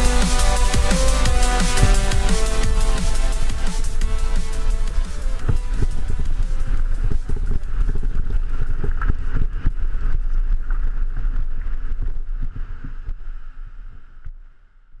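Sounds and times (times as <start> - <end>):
wind on microphone: 5.4 - 14.3.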